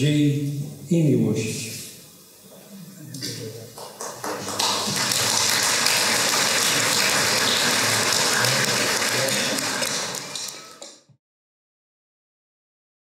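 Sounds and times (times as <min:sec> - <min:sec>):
crowd clapping: 0:03.7 - 0:11.0.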